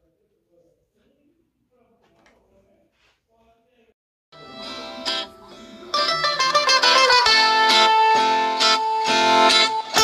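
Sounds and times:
instrumental music with plucked strings: 0:04.4 - 0:10.0.

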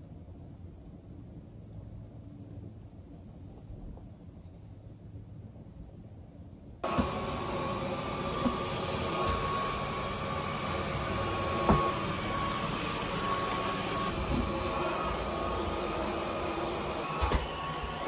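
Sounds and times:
vacuum cleaner running: 0:06.8 - 0:18.0.

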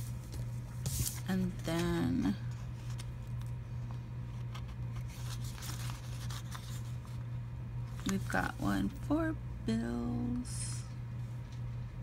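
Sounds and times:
steady low hum: 0:00.0 - 0:12.0
sticker sheet crinkling: 0:04.3 - 0:07.2.

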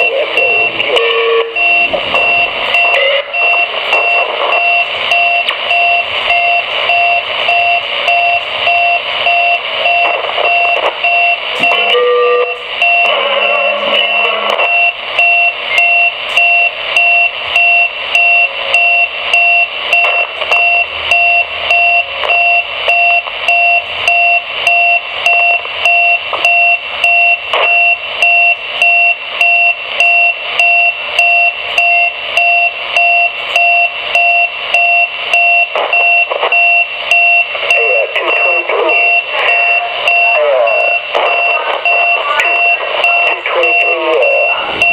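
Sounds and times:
radio static: 0:00.0 - 0:21.1, 0:27.4 - 0:29.4, 0:35.2 - 0:44.9
two-tone electronic beeps: 0:00.0 - 0:44.9.

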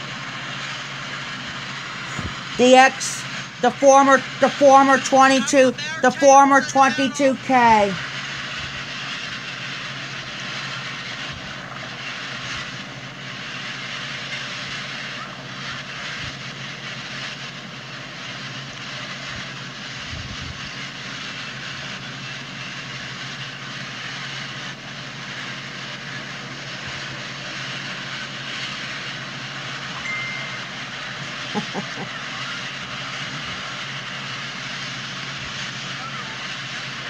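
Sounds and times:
thin squeal: 0:30.0 - 0:30.8.

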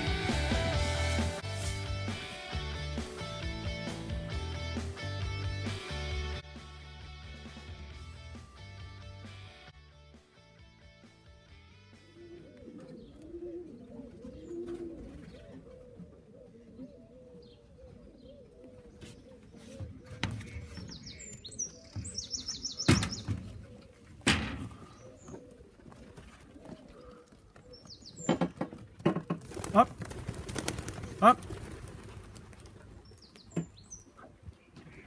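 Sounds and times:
pigeons cooing: 0:12.0 - 0:35.0
wing flapping: 0:29.4 - 0:33.2.

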